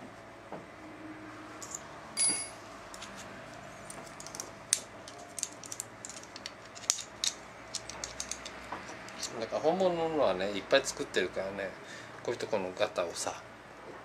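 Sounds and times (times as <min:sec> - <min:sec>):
brief metallic ring: 0:02.2 - 0:02.6
small metal parts clinking: 0:05.1 - 0:09.4.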